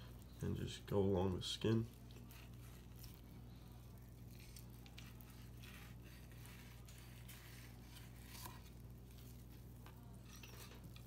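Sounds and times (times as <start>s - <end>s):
steady low hum: 0.0s - 11.0s
knife skinning fish fillet: 1.8s - 3.3s, 4.0s - 9.4s.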